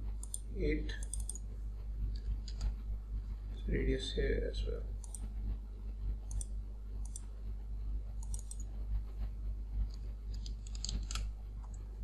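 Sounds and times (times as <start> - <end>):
low hum: 0.0 - 12.0
computer mouse clicking: 0.2 - 1.4, 2.1 - 2.7, 5.0 - 5.3, 6.2 - 7.3, 8.2 - 8.8, 9.8 - 11.9.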